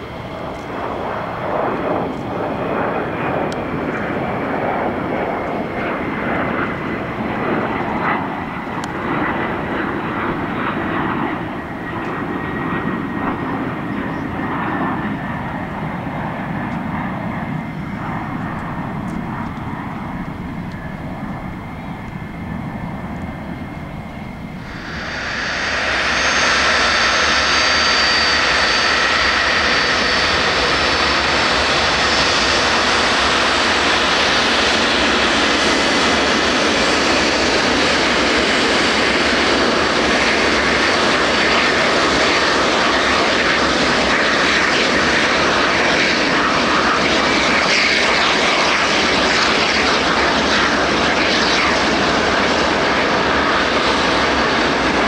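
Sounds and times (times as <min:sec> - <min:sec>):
aircraft engines roaring: 0:00.0 - 0:55.0
high whining tones: 0:20.8 - 0:34.3.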